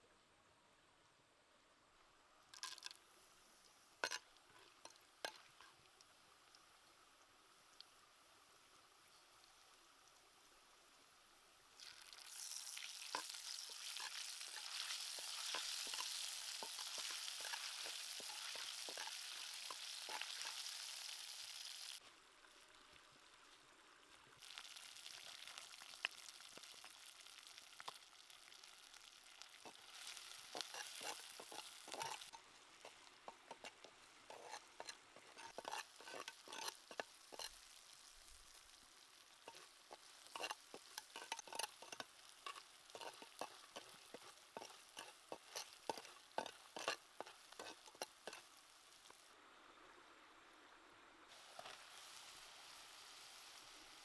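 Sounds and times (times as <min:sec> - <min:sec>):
chilies sizzling in hot oil: 0:02.5 - 0:49.8, 0:51.3 - 0:54.0
stirring scrapes and taps in pot: 0:02.6 - 0:03.0, 0:04.0 - 0:06.1, 0:12.4 - 0:21.1, 0:24.5 - 0:28.0, 0:29.0 - 0:38.6, 0:39.2 - 0:49.2.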